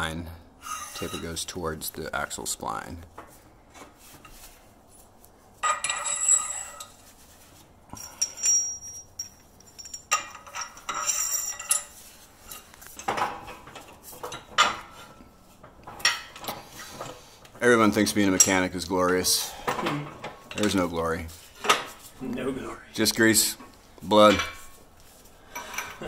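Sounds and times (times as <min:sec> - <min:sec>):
steel parts clinking and clanking: 0:00.7 - 0:01.6, 0:05.6 - 0:07.1, 0:07.9 - 0:22.1, 0:23.5 - 0:24.8, 0:25.4 - 0:26.0.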